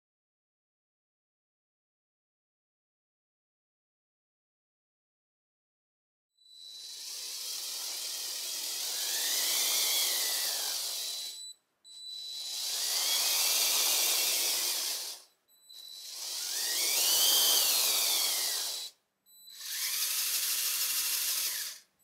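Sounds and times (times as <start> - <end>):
toy train motor whining: 6.4 - 21.9.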